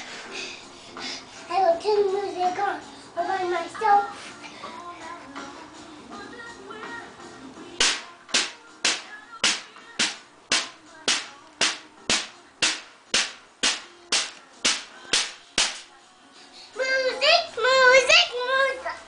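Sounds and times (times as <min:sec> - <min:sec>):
hand slaps: 0:07.8 - 0:15.9.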